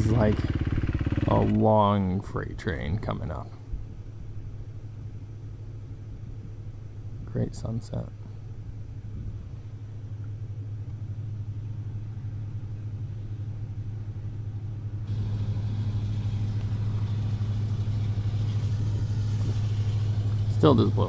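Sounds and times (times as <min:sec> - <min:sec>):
distant diesel locomotive drone: 0:00.0 - 0:21.0
train hiss: 0:15.1 - 0:21.0.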